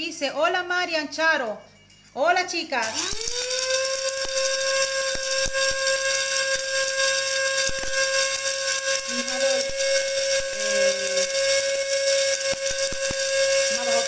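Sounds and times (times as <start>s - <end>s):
spice grinder motor whine: 2.8s - 14.0s
spices being ground: 2.9s - 14.0s.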